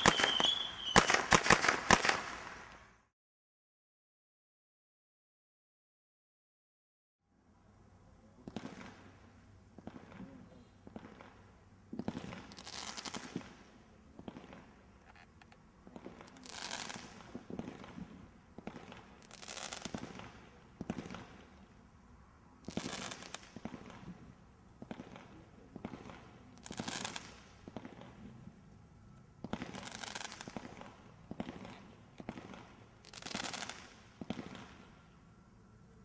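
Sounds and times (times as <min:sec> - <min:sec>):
firework hiss: 0:12.1 - 0:13.6, 0:16.1 - 0:18.1, 0:22.7 - 0:24.1, 0:26.6 - 0:28.2, 0:29.5 - 0:31.5, 0:32.4 - 0:34.7.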